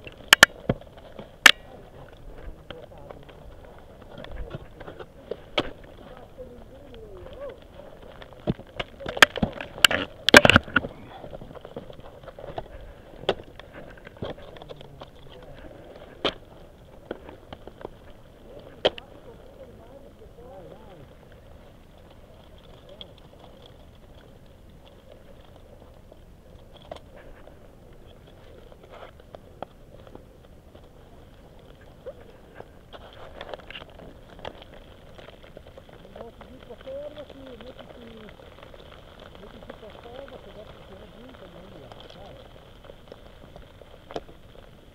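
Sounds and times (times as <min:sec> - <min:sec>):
ice axes striking ice: 0:08.4 - 0:10.9.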